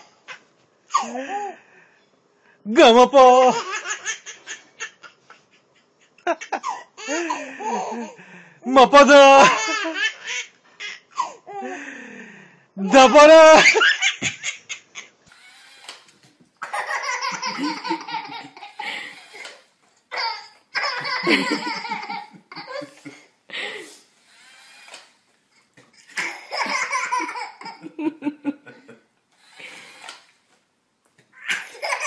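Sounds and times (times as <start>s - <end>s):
baby laughing: 3.4s - 5.5s, 9.4s - 11.4s, 13.0s - 23.2s, 25.8s - 28.9s, 31.3s - 32.0s.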